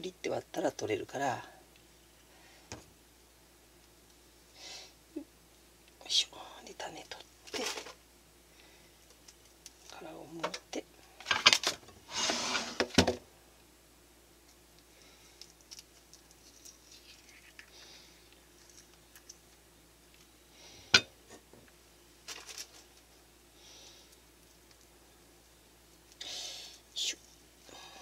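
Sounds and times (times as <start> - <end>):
plastic tray scraping and rustling: 11.2 - 13.1
avocado peeled by hand: 14.4 - 20.4.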